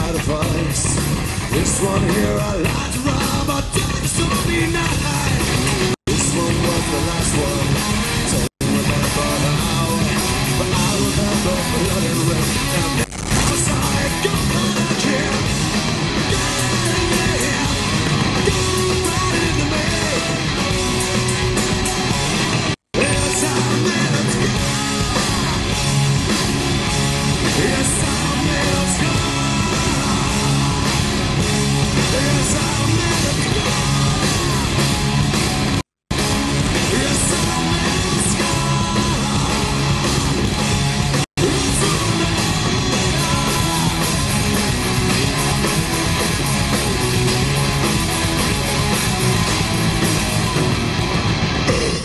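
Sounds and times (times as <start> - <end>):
person singing: 0.0 - 5.5, 6.1 - 15.5, 16.3 - 22.1, 23.0 - 25.8, 27.4 - 31.1, 32.0 - 34.7, 36.7 - 40.3, 41.4 - 46.2
bass guitar: 0.0 - 52.0
distorted electric guitars: 0.0 - 52.0
drums: 0.0 - 52.0.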